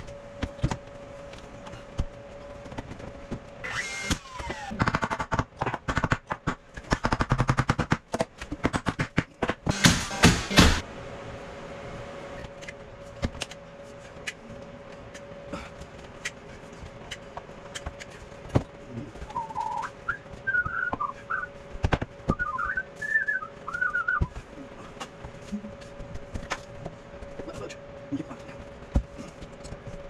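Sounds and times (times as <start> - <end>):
steady low hum: 0.0 - 30.0
person whistling a tune: 19.3 - 21.5, 22.3 - 24.3.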